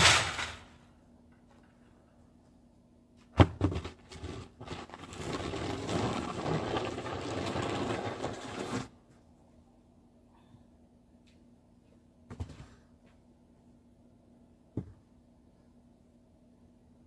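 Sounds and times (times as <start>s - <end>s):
snow shovel scraping ground: 3.7s - 8.9s.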